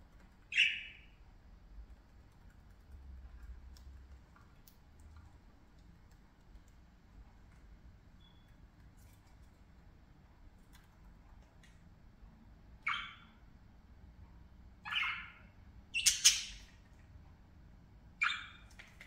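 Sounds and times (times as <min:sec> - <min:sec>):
budgerigars squawking: 0:14.9 - 0:16.6.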